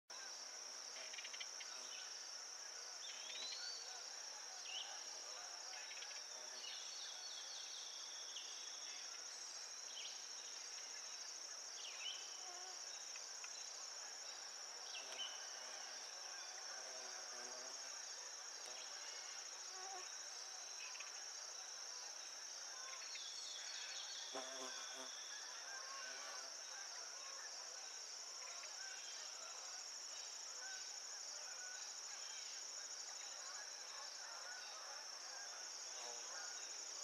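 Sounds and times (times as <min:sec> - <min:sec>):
insects trilling: 0:00.1 - 0:37.0.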